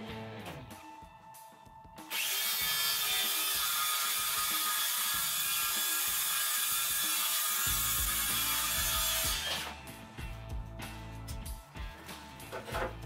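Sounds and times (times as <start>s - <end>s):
circular saw cutting wood: 2.1s - 9.8s.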